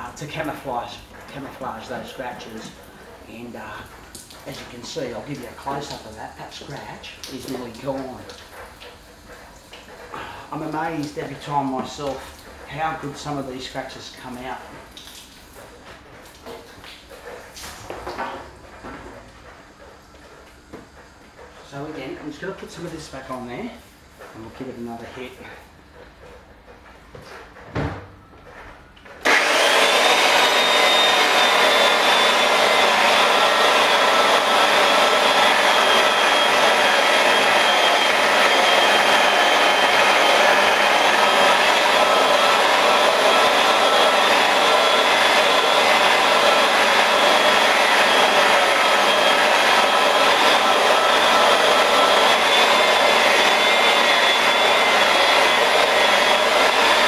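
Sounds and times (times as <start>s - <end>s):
electric polisher whining: 29.2s - 57.0s.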